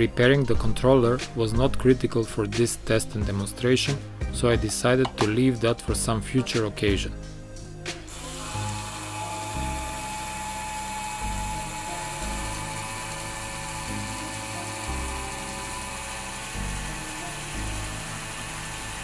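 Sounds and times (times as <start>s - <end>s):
background music: 0.0s - 19.0s
electric motor high whine: 8.0s - 19.0s.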